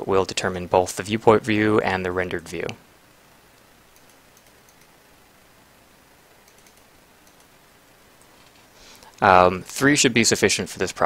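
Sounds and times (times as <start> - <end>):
low hiss: 0.0 - 11.0
keyboard and mouse clicks: 3.6 - 5.0, 6.4 - 7.5.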